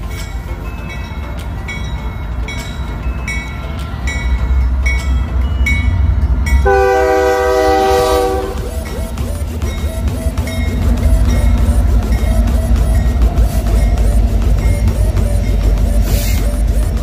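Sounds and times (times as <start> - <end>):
locomotive bell ringing: 0.0 - 17.0
locomotive engine rumbling: 0.0 - 17.0
air horn chord: 6.6 - 8.7.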